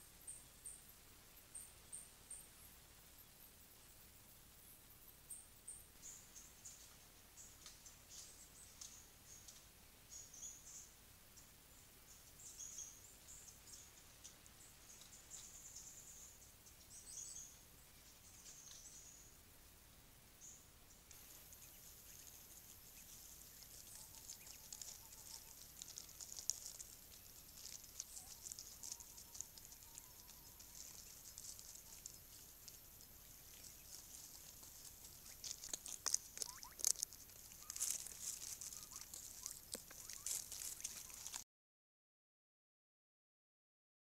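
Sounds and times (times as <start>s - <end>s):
soft bird calls: 20.4s - 41.4s
birds scratching in dry leaves: 21.1s - 41.4s.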